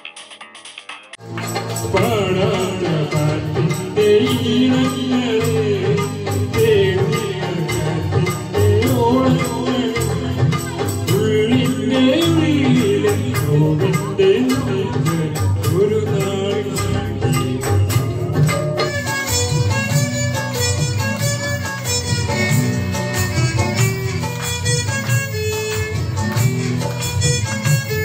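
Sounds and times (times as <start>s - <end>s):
rattling percussion: 0.1s - 28.0s
amplified accompaniment: 1.2s - 28.0s
boy singing into microphone: 1.9s - 20.1s.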